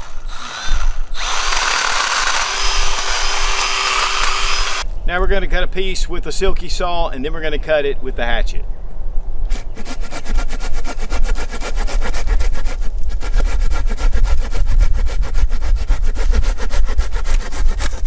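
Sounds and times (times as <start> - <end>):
pruning saw rasping through wood: 0.0 - 4.8, 9.5 - 18.0.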